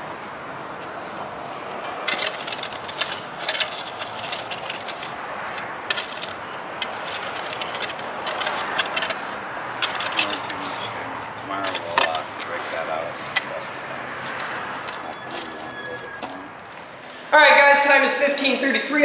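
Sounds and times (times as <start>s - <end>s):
shovel scraping gritty soil: 1.9s - 16.4s.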